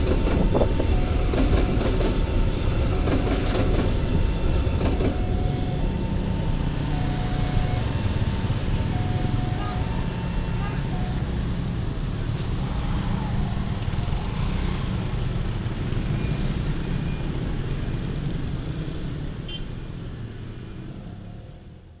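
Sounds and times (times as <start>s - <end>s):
motorcycles and scooters passing: 12.5s - 19.4s.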